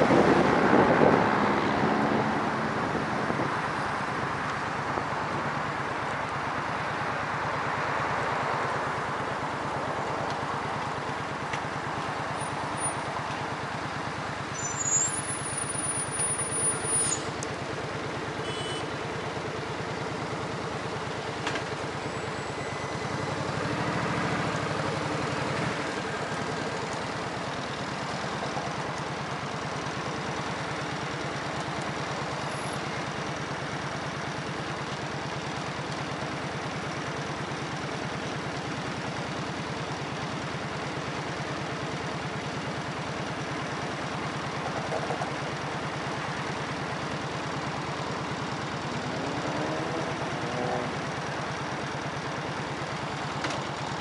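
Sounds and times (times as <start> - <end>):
engine running with low throb: 0.0 - 14.6.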